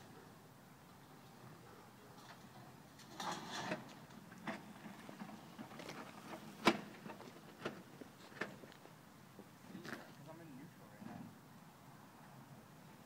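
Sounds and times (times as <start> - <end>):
scraping rattle: 3.0 - 7.8.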